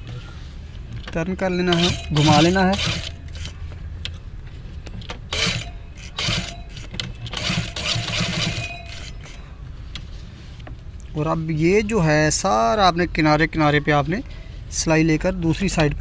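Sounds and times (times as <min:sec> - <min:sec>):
sewing machine running: 0:01.7 - 0:03.5, 0:05.3 - 0:09.4.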